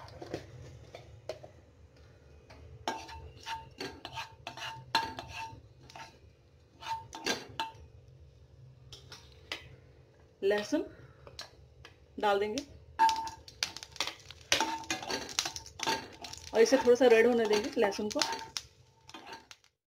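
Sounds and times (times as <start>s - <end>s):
spatula scraping a pan: 2.8s - 7.8s, 14.0s - 19.6s.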